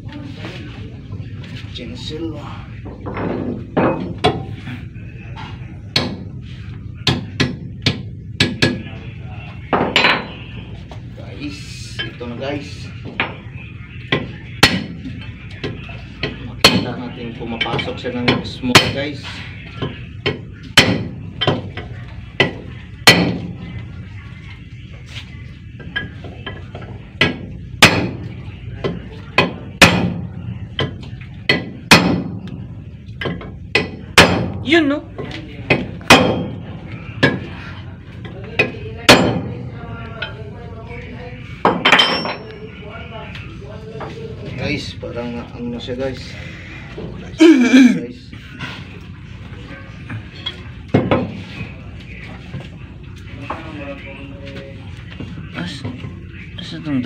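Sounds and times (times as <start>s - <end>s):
hammer striking steel bar: 20.8s - 21.1s, 29.4s - 30.2s, 31.5s - 32.3s, 33.8s - 34.5s, 36.1s - 36.6s.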